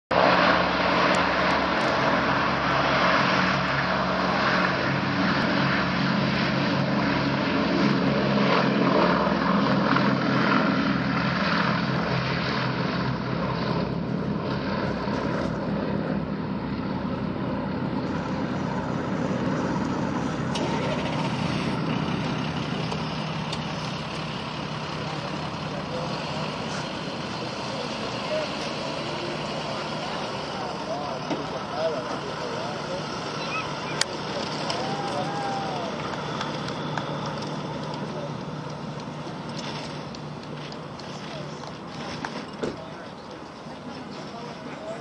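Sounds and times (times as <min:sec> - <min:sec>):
propeller aircraft engines droning: 0:00.1 - 0:45.0.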